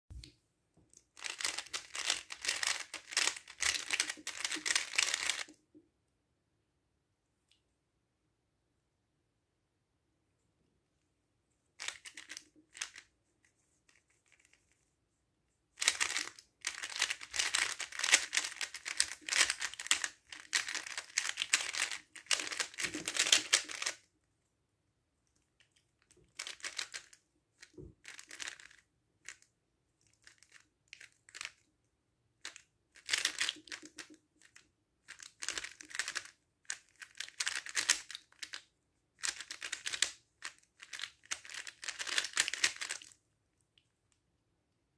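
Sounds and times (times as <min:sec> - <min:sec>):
puzzle cube layers clacking: 0:01.0 - 0:05.5, 0:11.8 - 0:13.1, 0:15.8 - 0:24.0, 0:26.3 - 0:29.4, 0:32.4 - 0:38.6, 0:39.2 - 0:43.2.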